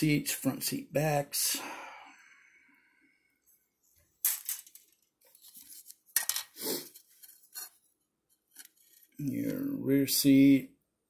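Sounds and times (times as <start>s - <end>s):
plastic parts clattering: 4.2s - 7.8s.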